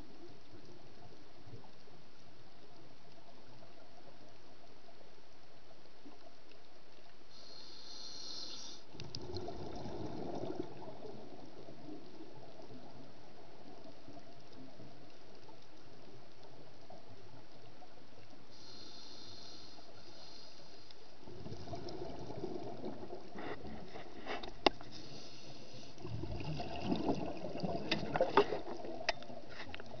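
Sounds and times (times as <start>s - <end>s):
steady underwater hiss: 0.0s - 30.0s
diver's exhaled air bubbling: 9.0s - 11.4s, 21.3s - 24.4s, 25.7s - 29.0s.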